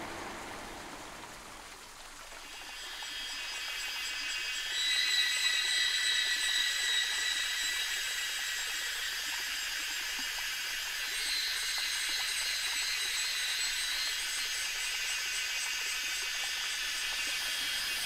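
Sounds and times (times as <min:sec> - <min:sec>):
insects buzzing: 0:00.0 - 0:18.0
shrill insect tones: 0:02.4 - 0:18.0.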